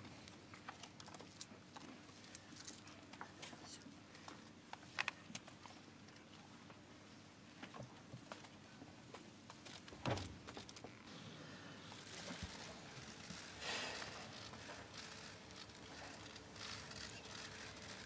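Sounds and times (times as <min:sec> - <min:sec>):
hiss-like noise: 0:11.1 - 0:15.3.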